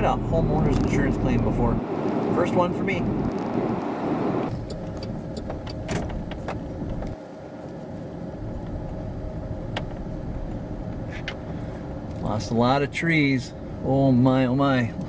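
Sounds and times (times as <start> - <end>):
car road and tyre noise: 0.0 - 15.0
light ticks: 4.5 - 7.2.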